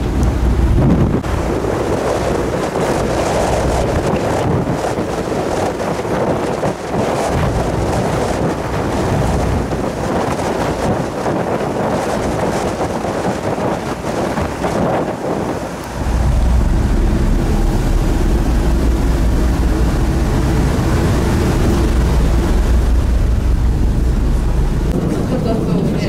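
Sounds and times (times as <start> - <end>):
water rushing along hull: 0.0 - 26.0
wind buffeting microphone: 0.0 - 26.0
low rumble: 15.8 - 26.0.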